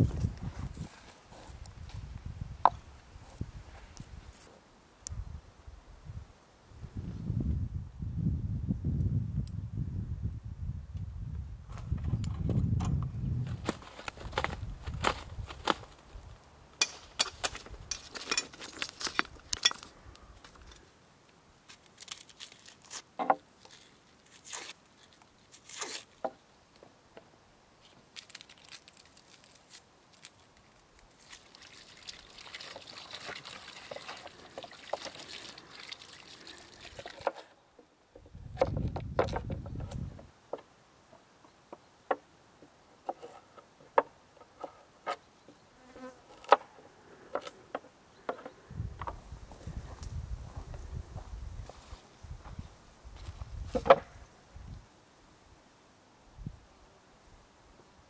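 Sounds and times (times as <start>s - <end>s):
water splashing over potatoes: 31.2s - 37.2s.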